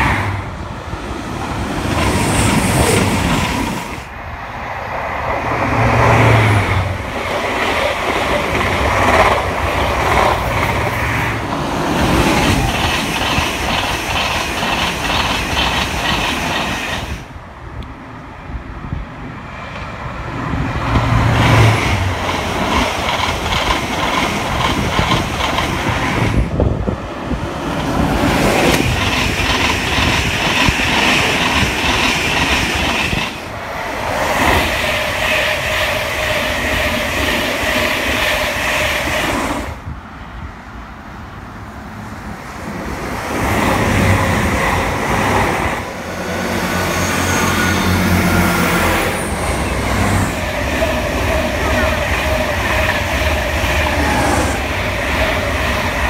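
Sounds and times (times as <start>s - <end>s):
passing train rushing: 0.0s - 56.0s
wheels clickety-clack: 7.1s - 17.2s, 20.9s - 26.5s, 27.8s - 33.5s.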